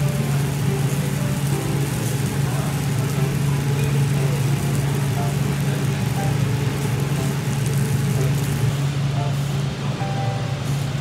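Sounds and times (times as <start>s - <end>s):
faint crackles: 0.0s - 8.7s
fish sizzling on a grill: 0.0s - 9.6s
steady low hum: 0.0s - 11.0s.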